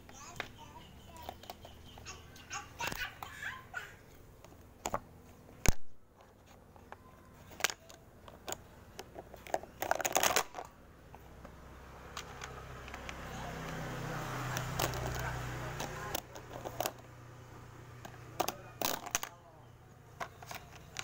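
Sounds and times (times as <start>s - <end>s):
plastic toy pieces clattering: 7.4s - 10.7s, 14.6s - 17.0s, 18.0s - 19.4s, 20.2s - 21.0s.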